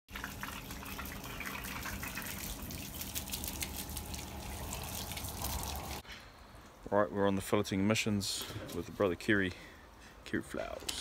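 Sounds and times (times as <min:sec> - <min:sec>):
hose spraying water on wood: 0:00.1 - 0:06.0.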